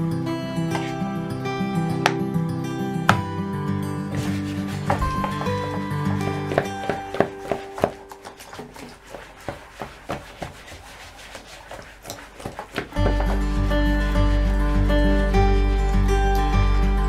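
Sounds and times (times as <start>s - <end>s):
background music: 0.0s - 8.8s, 12.9s - 17.0s
hand scrubbing wet fabric: 4.1s - 14.8s.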